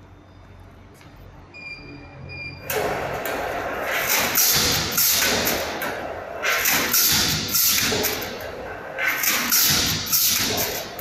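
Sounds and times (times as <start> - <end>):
machine thuds: 2.7 - 11.0
packaging machine rushing noise: 2.7 - 11.0.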